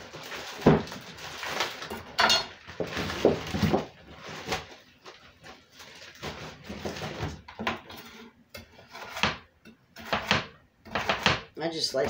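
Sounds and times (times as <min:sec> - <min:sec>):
plastic bag rustling: 0:00.0 - 0:07.5.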